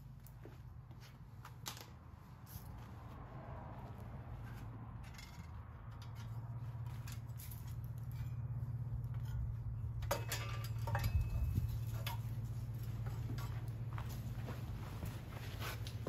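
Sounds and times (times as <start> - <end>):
steady low hum: 5.6 - 16.0.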